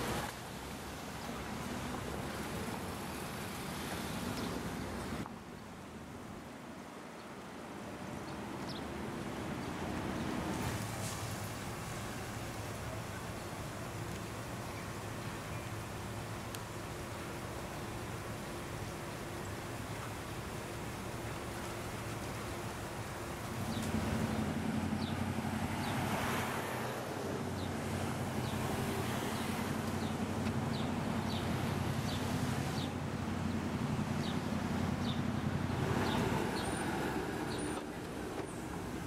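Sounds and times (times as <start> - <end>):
low street rumble and hiss: 0.0 - 39.0
car engines running: 8.4 - 39.0.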